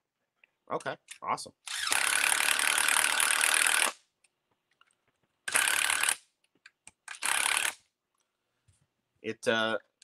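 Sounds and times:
electric screwdriver running: 0:01.7 - 0:04.0, 0:05.5 - 0:06.2, 0:07.1 - 0:07.8.

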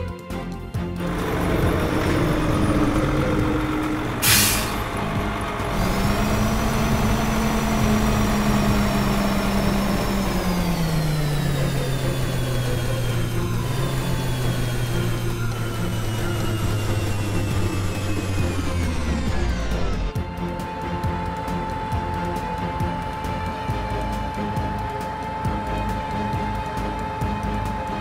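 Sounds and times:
truck engine running: 0:00.0 - 0:28.0
air brake hiss: 0:04.2 - 0:04.8.

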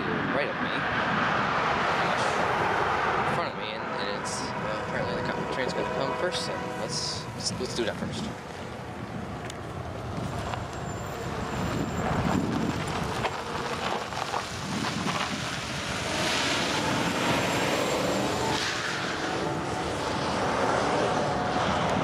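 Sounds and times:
low rumble of wind and traffic: 0:00.0 - 0:22.0
pickup truck driving past: 0:09.8 - 0:22.0.

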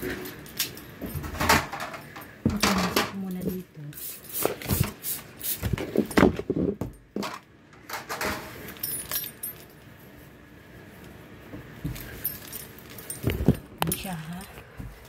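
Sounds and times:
keys jangling: 0:08.7 - 0:09.9, 0:12.0 - 0:14.2.

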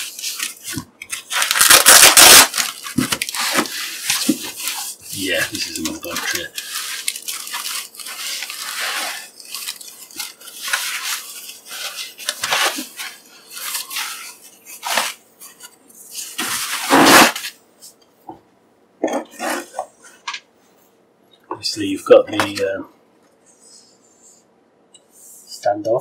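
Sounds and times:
foam packing sheet rustling: 0:00.0 - 0:17.6.

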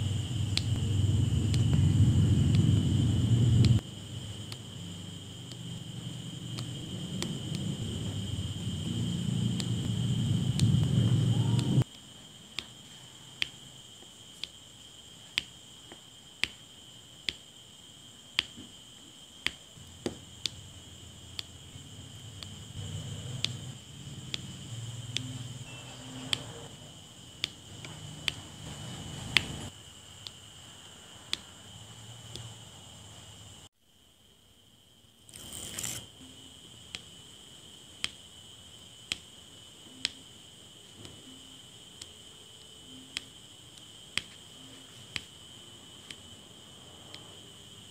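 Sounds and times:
low rumble: 0:00.0 - 0:03.8, 0:06.4 - 0:11.8
steady high whine: 0:00.0 - 0:13.8
plastic film rustling: 0:35.3 - 0:36.1.

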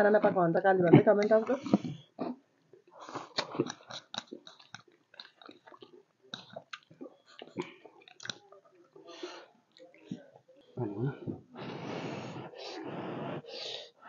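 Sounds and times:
wet chewing and lip smacks: 0:01.6 - 0:09.0.

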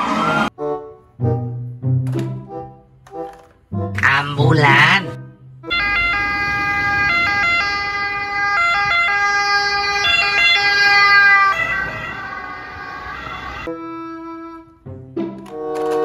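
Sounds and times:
two-tone ambulance siren: 0:05.6 - 0:13.7.

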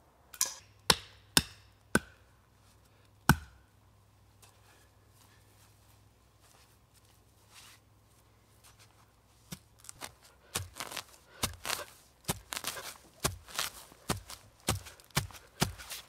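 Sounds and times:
hand saw cutting firewood: 0:10.6 - 0:16.0.

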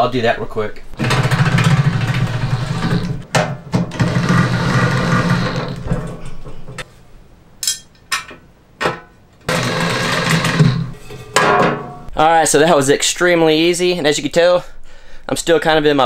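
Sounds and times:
cordless drill driving screws: 0:03.9 - 0:05.8, 0:09.5 - 0:10.9.

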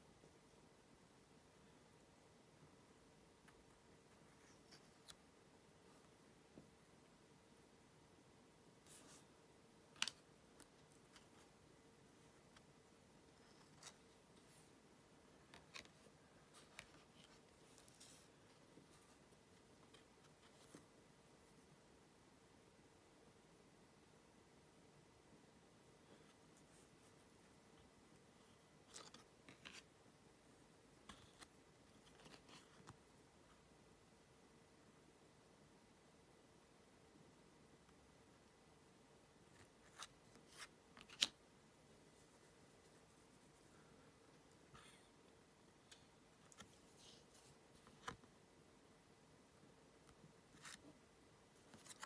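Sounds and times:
trading cards rustling: 0:39.5 - 0:41.4.

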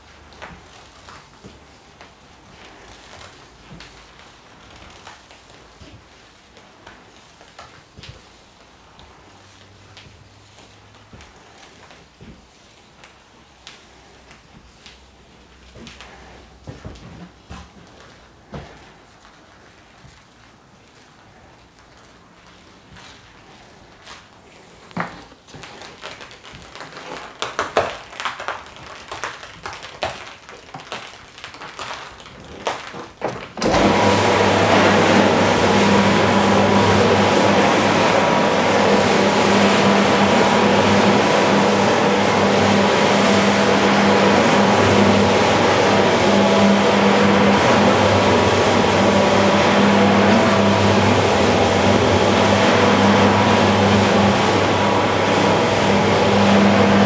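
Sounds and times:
floor scrubber humming: 0:33.6 - 0:57.0.

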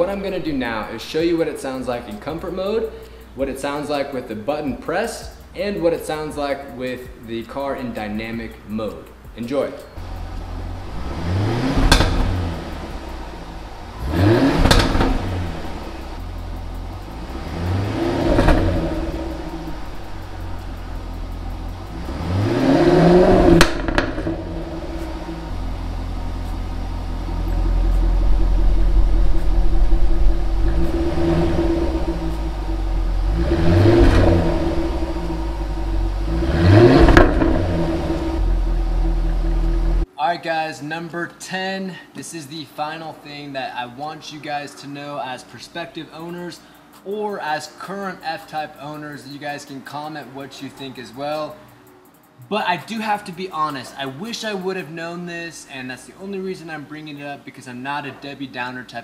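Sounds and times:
car engine idling: 0:10.0 - 0:40.1
car engine revving: 0:10.0 - 0:40.1.

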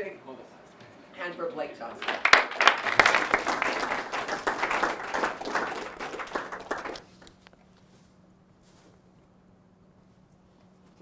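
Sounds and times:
students applauding: 0:01.9 - 0:07.5.

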